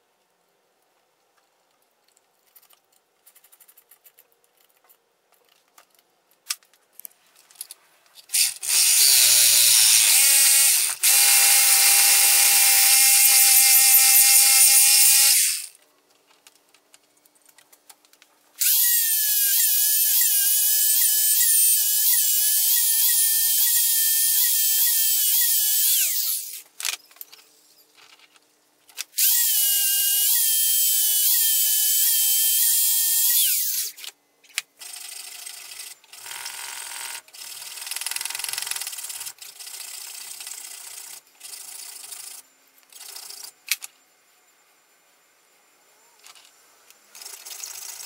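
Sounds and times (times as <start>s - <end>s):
angle grinder cutting bolt: 8.2s - 15.8s
power tool running: 8.3s - 15.8s.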